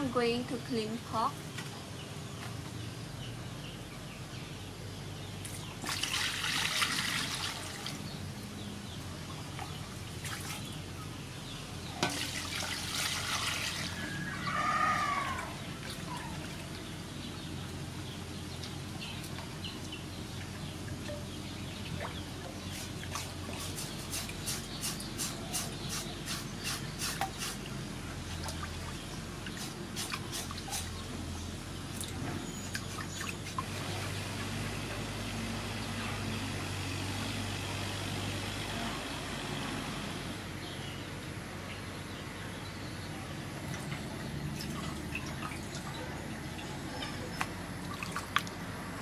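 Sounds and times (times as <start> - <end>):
water splashing in metal basin: 5.4 - 8.2, 11.9 - 14.3, 43.6 - 48.6
knife scraping wet pork skin: 22.7 - 27.6, 29.6 - 31.0.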